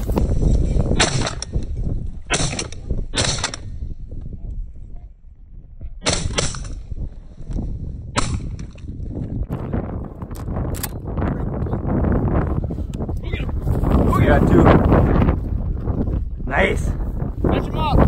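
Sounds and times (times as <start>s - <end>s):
shotgun shots: 2.3s - 3.7s, 6.0s - 6.8s, 8.2s - 8.7s.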